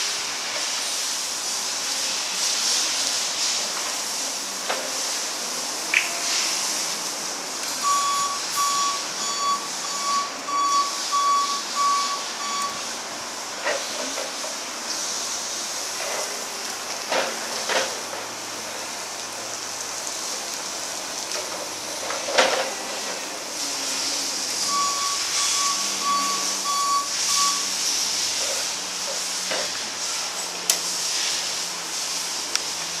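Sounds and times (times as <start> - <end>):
steady hiss: 0.0 - 33.0
reversing alarm beeping: 7.8 - 12.9, 24.6 - 27.8.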